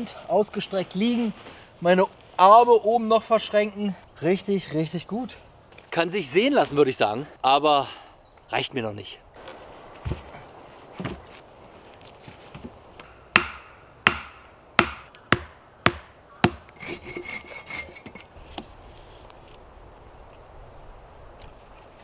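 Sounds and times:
axe striking wooden stake: 13.0 - 16.8.

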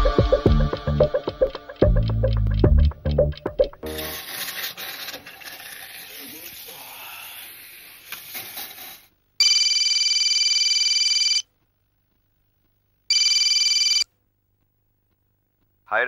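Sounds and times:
mobile phone ringing: 9.4 - 11.5, 13.1 - 14.1.

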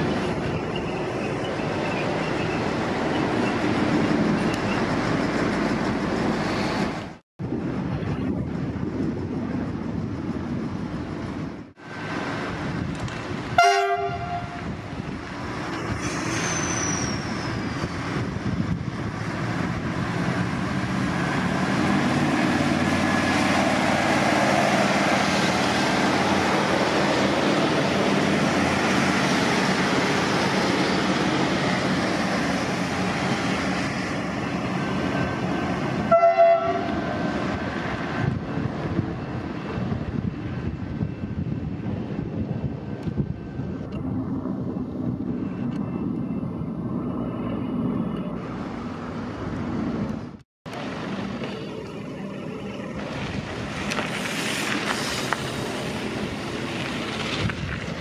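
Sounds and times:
train wheels on rails: 0.0 - 58.0
train horn blast: 13.6 - 14.6, 36.0 - 37.1.

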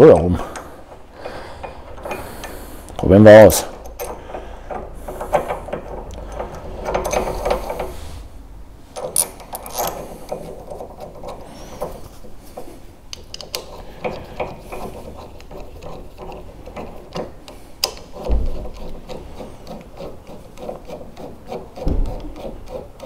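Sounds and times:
hex key clicking in lock screw: 13.1 - 23.0
dull thumps: 18.2 - 19.0, 21.8 - 22.4.

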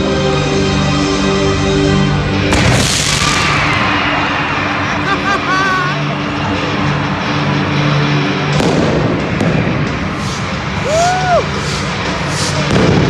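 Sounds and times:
crowd noise: 2.2 - 13.0
flame cannons firing: 2.5 - 3.9.

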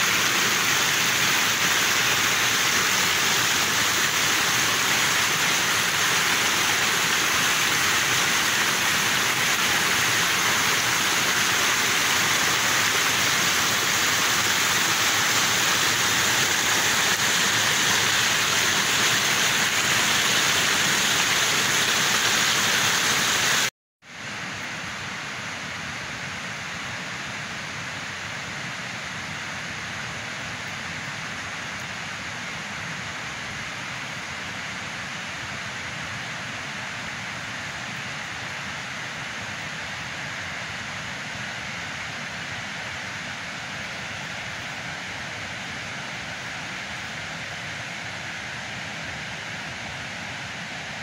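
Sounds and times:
water rushing over rocks: 0.0 - 23.7
steady hiss: 0.0 - 51.0.

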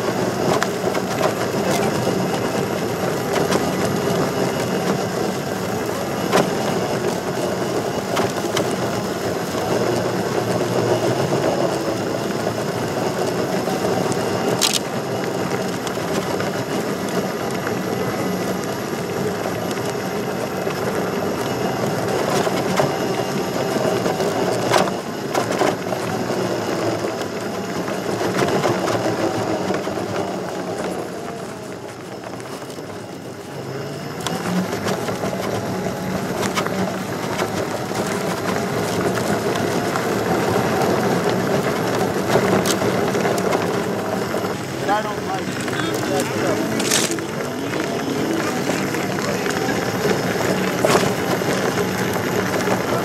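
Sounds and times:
tyre rumbling over gravel: 0.0 - 53.0
clicks and knocks from bumps: 36.3 - 53.0.

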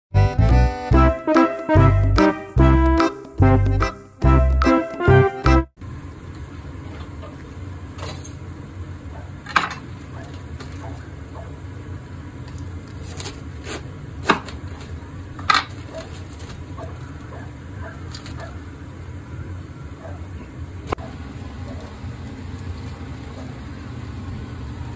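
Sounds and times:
music jingle: 0.2 - 5.8
low background hum: 5.8 - 24.9
knife cutting cabbage on board: 12.9 - 14.6.

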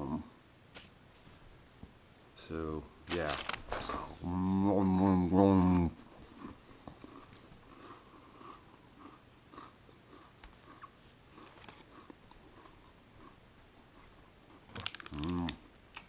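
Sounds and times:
person chewing crackers: 6.1 - 16.0.

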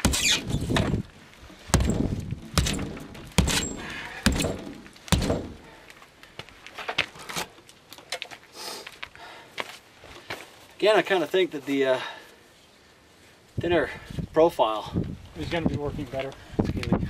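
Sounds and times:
tomahawk chopping into a door: 0.0 - 1.0, 1.7 - 5.8.

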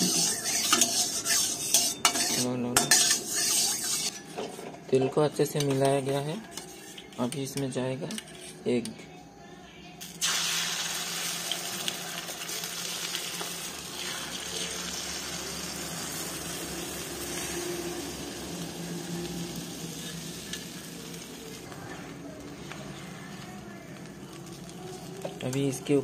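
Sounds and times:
egg frying in hot oil: 0.0 - 2.4, 10.1 - 21.7.

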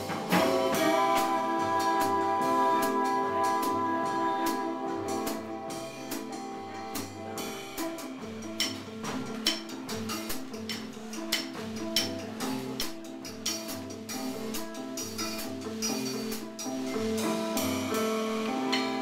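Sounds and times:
jazz band playing: 0.0 - 19.0.

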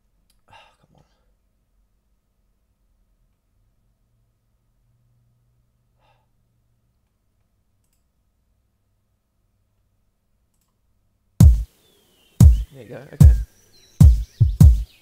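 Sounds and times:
faint breath: 6.0 - 6.4
computer mouse clicks: 7.8 - 8.0.

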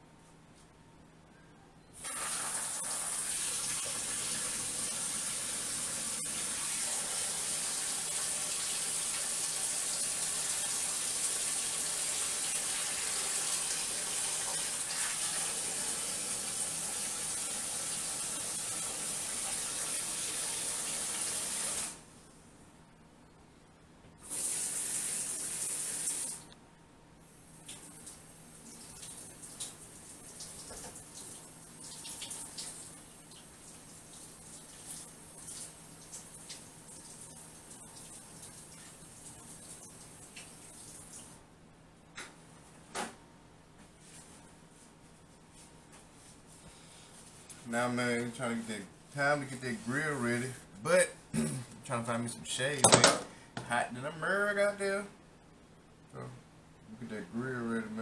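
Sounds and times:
faucet running water into sink: 2.0 - 21.9.

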